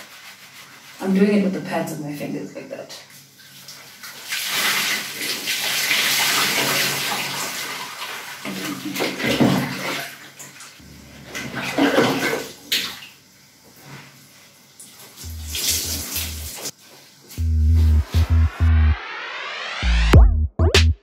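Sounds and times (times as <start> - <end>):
water rushing from a tub: 3.5 - 10.6.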